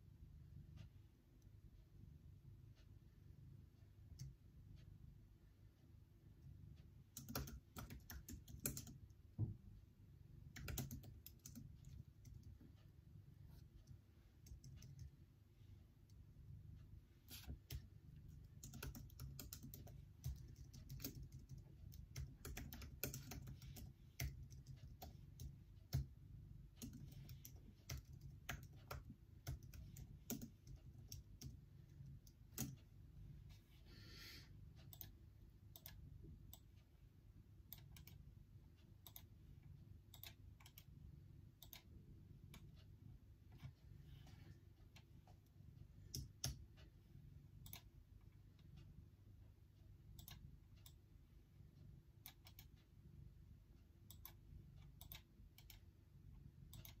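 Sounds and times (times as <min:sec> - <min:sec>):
low steady hum: 0:00.0 - 0:57.0
laptop keyboard typing: 0:07.0 - 0:09.3, 0:10.4 - 0:12.8, 0:13.5 - 0:15.2, 0:17.3 - 0:32.9, 0:37.7 - 0:38.3, 0:46.0 - 0:46.8, 0:52.2 - 0:52.8, 0:56.6 - 0:57.0.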